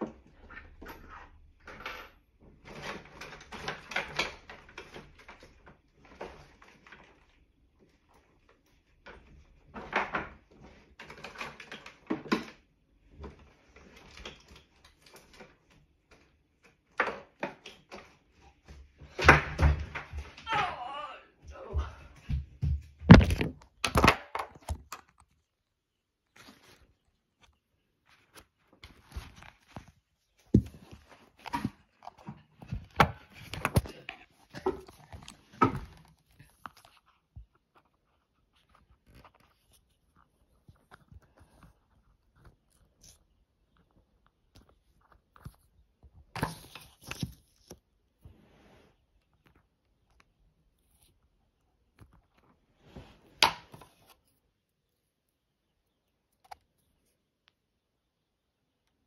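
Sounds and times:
rustling scrape: 0:48.2 - 0:49.2, 0:52.4 - 0:54.3.

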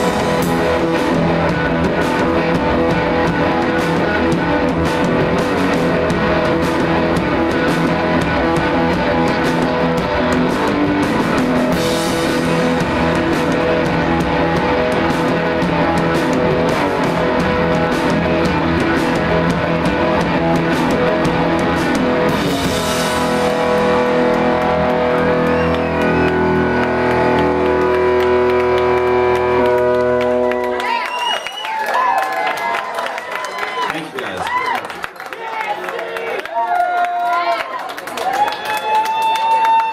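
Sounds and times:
held guitar notes ringing: 0:00.0 - 0:30.8
live rock band playing: 0:00.0 - 0:32.1.

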